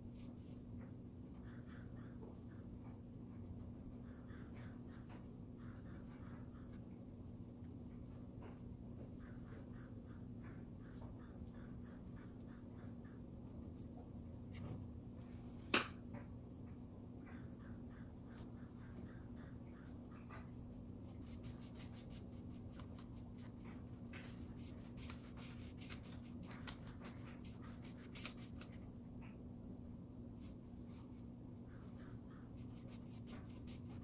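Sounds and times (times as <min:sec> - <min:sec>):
faint steady low hum: 0:00.0 - 0:34.0
paintbrush stroking on wood: 0:21.1 - 0:23.5, 0:32.6 - 0:34.0.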